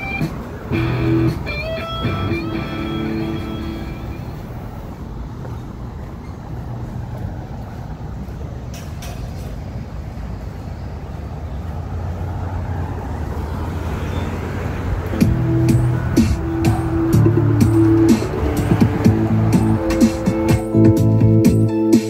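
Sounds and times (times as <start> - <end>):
traffic rumble: 0.0 - 22.0.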